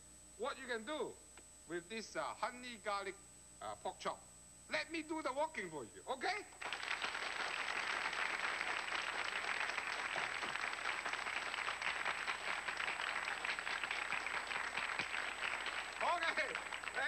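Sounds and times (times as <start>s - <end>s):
audience applauding: 6.6s - 17.0s.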